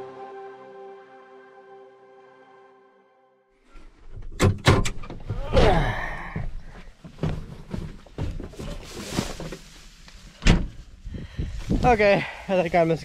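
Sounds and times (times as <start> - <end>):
rustling: 6.8 - 12.1.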